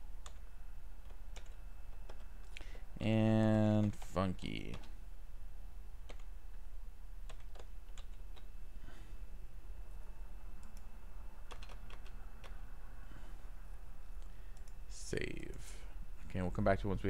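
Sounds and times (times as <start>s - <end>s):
faint low hum: 0.0s - 17.0s
keyboard typing: 1.0s - 2.5s, 3.3s - 5.0s, 6.0s - 6.3s, 7.2s - 8.5s, 11.5s - 12.6s.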